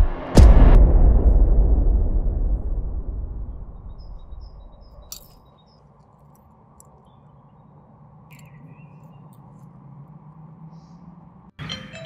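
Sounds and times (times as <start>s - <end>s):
small birds chirping: 3.8s - 11.5s.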